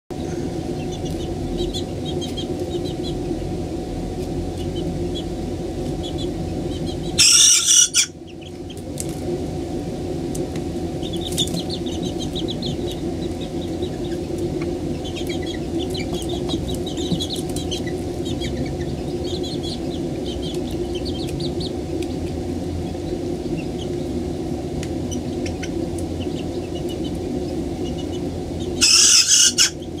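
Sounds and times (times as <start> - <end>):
steady low hum: 0.1 - 30.0
chicks cheeping softly: 0.2 - 9.6, 10.2 - 30.0
young rooster crowing: 28.8 - 29.8.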